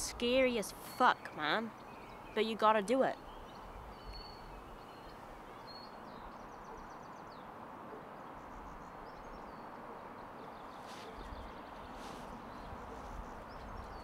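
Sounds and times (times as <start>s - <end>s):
small birds chirping: 0.0s - 14.0s.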